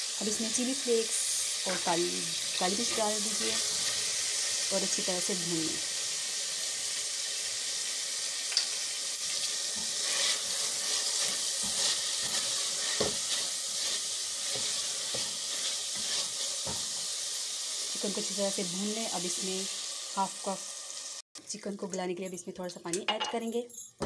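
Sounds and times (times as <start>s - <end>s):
chicken sizzling in oil: 0.0s - 21.2s
spatula scraping pot: 9.4s - 17.0s.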